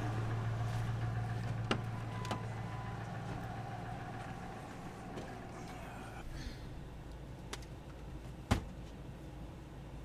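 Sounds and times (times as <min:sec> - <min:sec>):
truck engine idling: 0:00.0 - 0:07.4.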